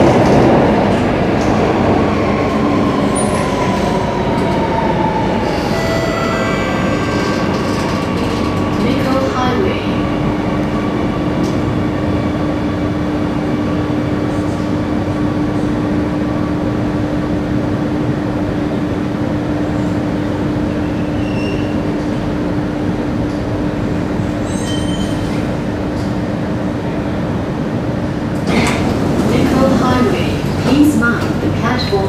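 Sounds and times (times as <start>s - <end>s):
train wheels rumbling on rails: 0.0s - 32.0s
faint short squeaks: 21.0s - 21.7s, 24.5s - 25.4s.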